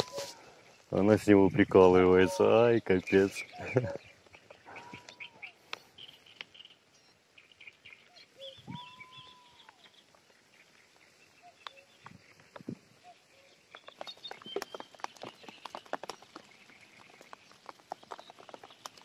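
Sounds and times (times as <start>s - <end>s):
small birds chirping: 0.0s - 19.0s
distant cuckoo calling: 2.1s - 6.8s, 7.6s - 14.8s.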